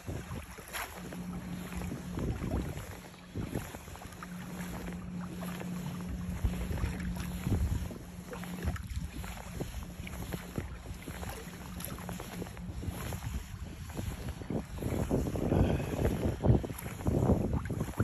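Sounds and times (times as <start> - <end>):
low hum: 0.0 - 18.0
water splashing against kayak hull: 0.0 - 18.0
wind on microphone: 0.0 - 18.0.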